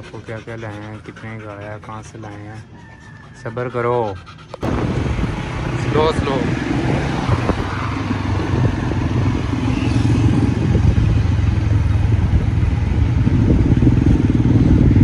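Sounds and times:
street traffic: 0.0s - 15.0s
small engine droning: 4.6s - 15.0s.

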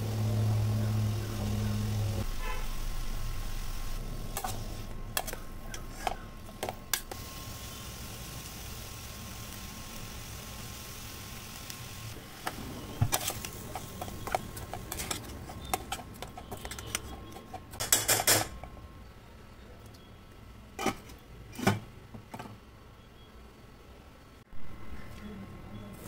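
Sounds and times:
metal spoon scraping steel pan: 13.1s - 18.5s.

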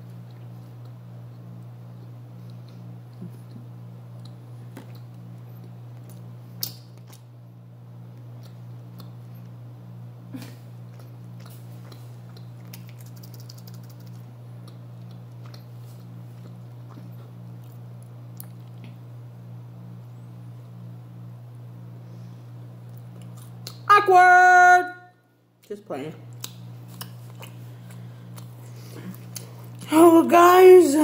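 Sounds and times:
steady low hum: 0.0s - 31.0s
mouth chewing: 10.9s - 19.0s, 26.3s - 29.9s.

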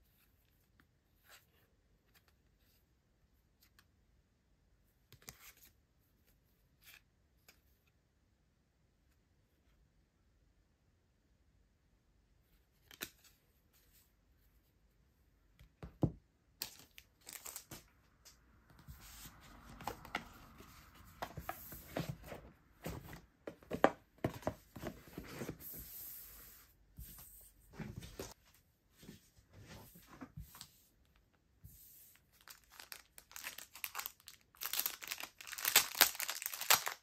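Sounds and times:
packaging crinkling: 32.4s - 37.0s.

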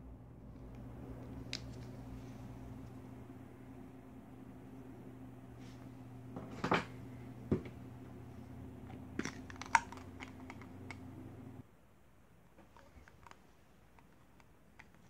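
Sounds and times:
steady low hum: 0.0s - 11.7s
plastic rattle: 9.2s - 11.0s, 12.7s - 15.0s
plastic syringe parts clicking: 9.2s - 11.0s.

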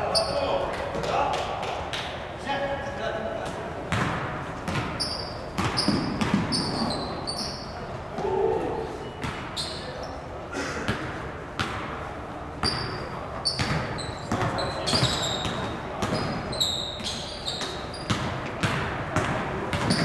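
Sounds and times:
basketball bouncing on wooden floor: 3.9s - 7.1s, 13.6s - 16.4s, 17.6s - 20.0s
voices: 7.7s - 11.0s.

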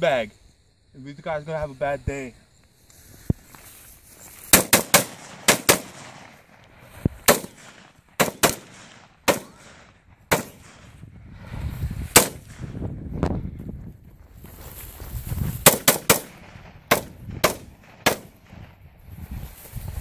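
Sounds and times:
rifle shots: 4.5s - 6.6s, 7.2s - 10.9s, 12.1s - 12.6s, 15.6s - 18.5s.

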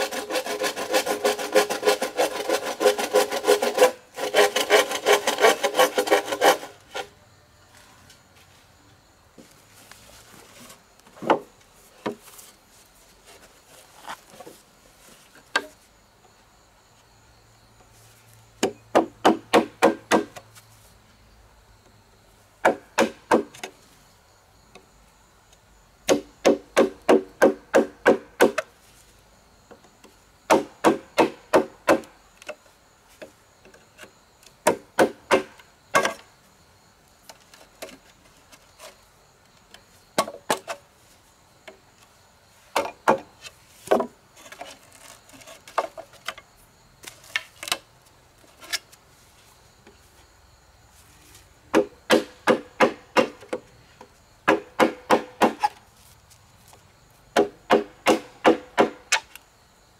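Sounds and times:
knife chopping bamboo: 18.6s - 20.4s, 26.1s - 28.7s, 30.5s - 32.1s, 34.6s - 36.2s, 51.7s - 53.6s, 54.5s - 55.7s, 57.4s - 59.2s.

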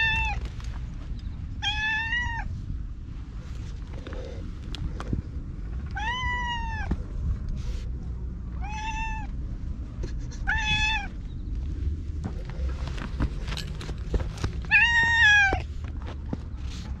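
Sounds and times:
cat meowing: 0.0s - 0.4s, 1.6s - 2.5s, 5.9s - 6.9s, 8.6s - 9.3s, 10.4s - 11.2s, 14.7s - 15.7s.

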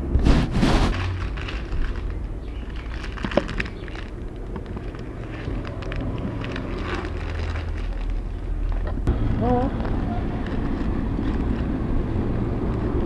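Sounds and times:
plastic bags crinkling: 0.6s - 8.8s.

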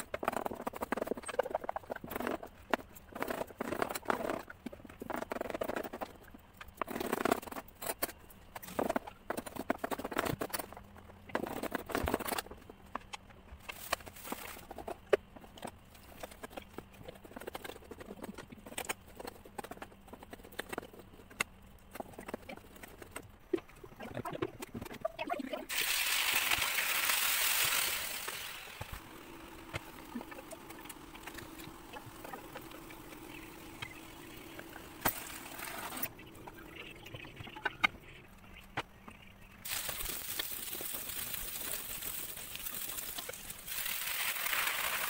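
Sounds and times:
meat sizzling in a pot: 25.7s - 29.0s, 39.6s - 45.0s.

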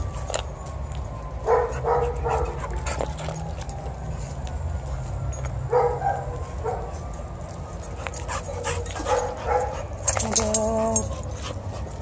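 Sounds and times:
dog whining: 8.9s - 11.9s.

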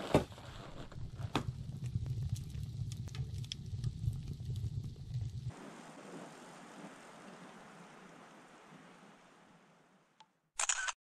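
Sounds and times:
wood fire crackling and popping: 0.0s - 5.5s
low rumble: 0.5s - 5.5s.

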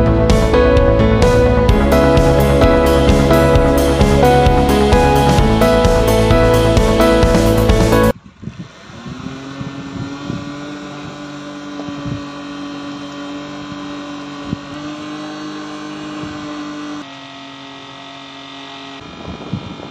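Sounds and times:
small fan motor humming: 8.1s - 19.9s.

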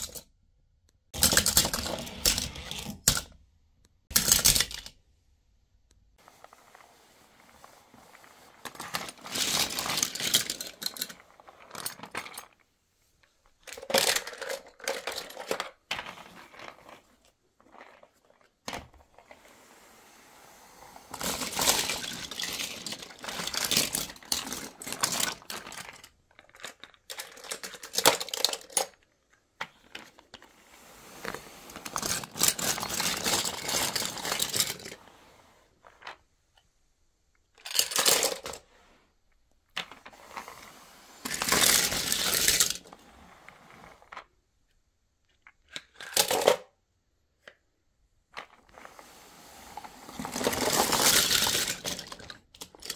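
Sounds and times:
toy cars clinking and clattering: 0.0s - 0.3s, 1.2s - 3.4s, 4.1s - 5.0s, 7.6s - 12.7s, 13.4s - 35.0s, 37.5s - 38.7s, 39.7s - 44.3s, 45.3s - 46.8s, 48.4s - 52.9s.

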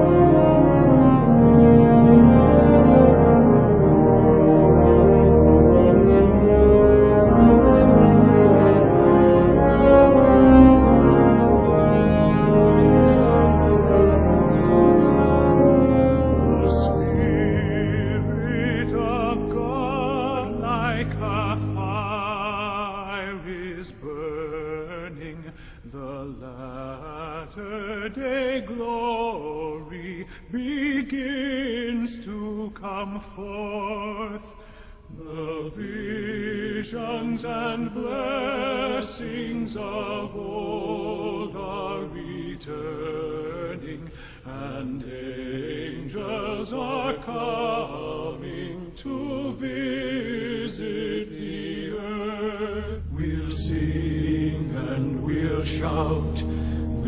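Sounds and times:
singing voices with vibrato: 16.5s - 57.0s.

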